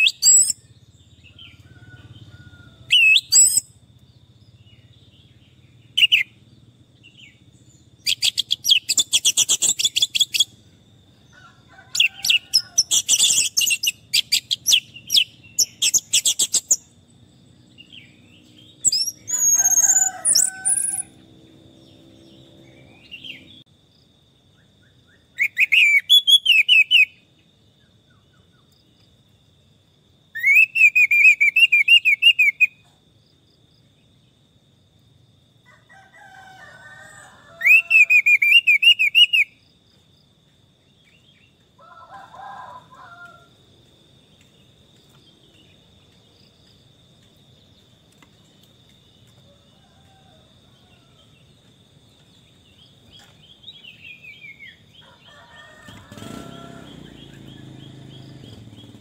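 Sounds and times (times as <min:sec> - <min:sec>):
thrush singing chattering trills: 0:04.5 - 0:10.7, 0:11.9 - 0:17.0, 0:17.6 - 0:23.7, 0:52.9 - 0:59.0.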